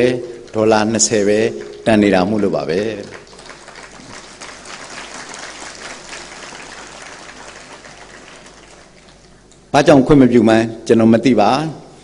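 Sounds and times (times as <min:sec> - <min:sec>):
audience clapping: 0:00.0 - 0:09.5.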